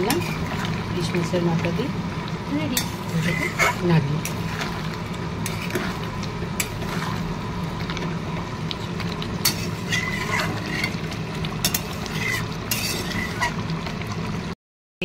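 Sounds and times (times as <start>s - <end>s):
metal spatula scraping a pan: 0.0s - 0.7s, 2.7s - 7.4s, 9.4s - 13.6s
steady low hum: 0.0s - 14.5s.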